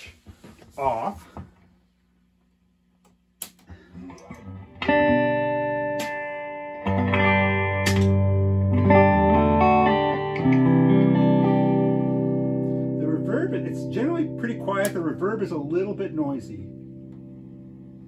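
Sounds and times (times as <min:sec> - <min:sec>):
amp switch click: 0:03.0 - 0:04.3, 0:05.9 - 0:06.4, 0:07.8 - 0:08.2, 0:14.8 - 0:15.1
plucked guitar notes: 0:03.9 - 0:18.0
guitar chords ringing: 0:04.0 - 0:18.0.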